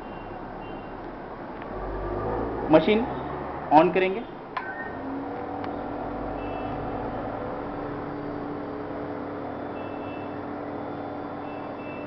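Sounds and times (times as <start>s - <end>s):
grinding machine motor humming: 4.9s - 12.0s.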